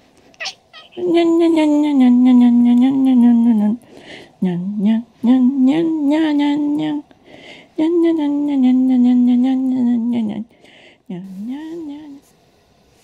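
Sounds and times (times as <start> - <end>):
cat yowling: 0.4 - 1.0.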